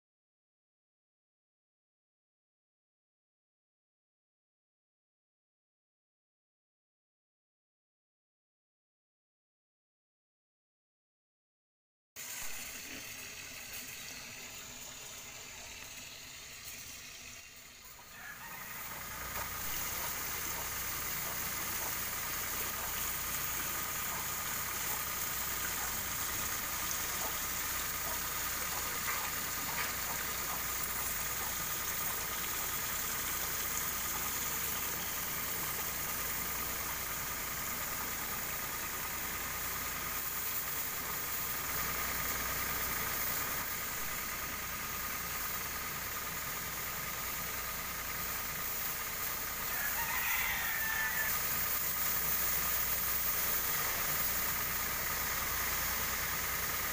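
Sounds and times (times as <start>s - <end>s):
petrol engine and pump running: 12.2s - 56.9s
water hissing from sprayer: 12.2s - 56.9s.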